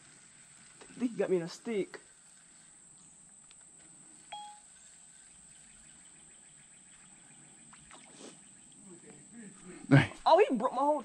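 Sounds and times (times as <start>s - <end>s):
short beep: 4.3s - 4.7s.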